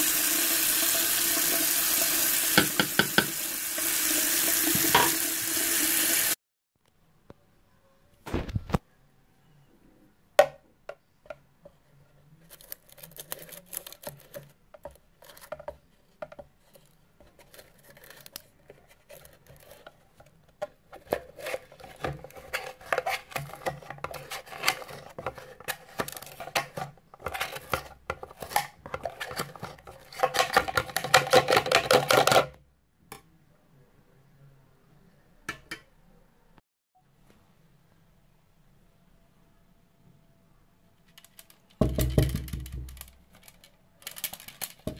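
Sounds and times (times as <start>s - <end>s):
plastic container clicking and rattling: 12.5s - 32.6s, 41.1s - 44.9s.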